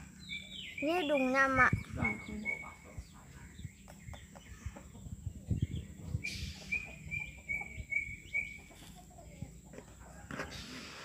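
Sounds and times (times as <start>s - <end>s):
bird chirping high notes: 0.1s - 2.9s.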